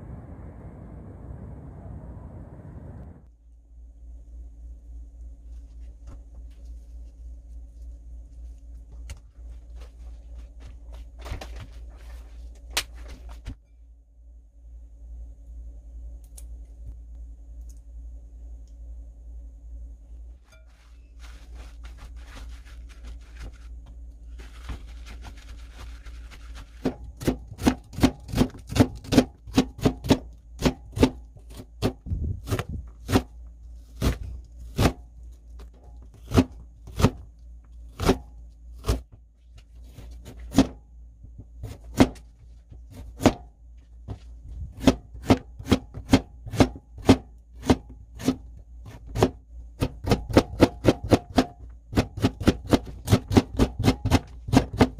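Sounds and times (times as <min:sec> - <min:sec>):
knife chopping vegetables: 0:24.5 - 0:33.3, 0:33.9 - 0:35.0, 0:36.1 - 0:37.2, 0:41.6 - 0:42.2, 0:44.7 - 0:54.9.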